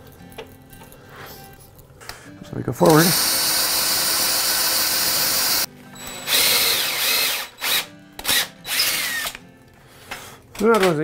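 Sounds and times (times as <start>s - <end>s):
cordless drill boring wood: 2.8s - 9.3s.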